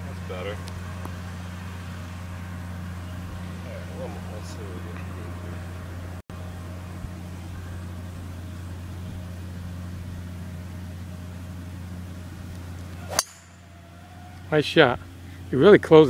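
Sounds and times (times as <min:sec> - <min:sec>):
steady low hum: 0:00.0 - 0:16.0
golf club striking ball: 0:12.8 - 0:13.8.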